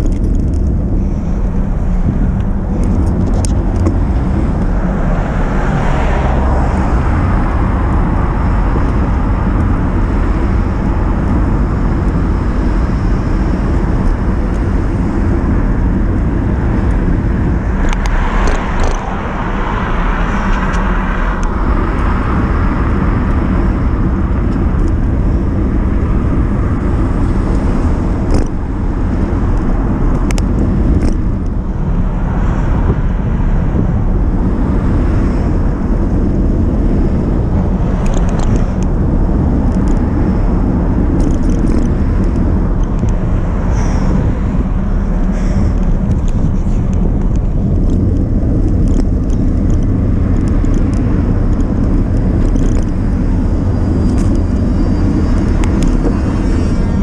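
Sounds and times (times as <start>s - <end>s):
bicycle tyres on tarmac: 0.0s - 57.0s
wind rumble on microphone: 0.0s - 57.0s.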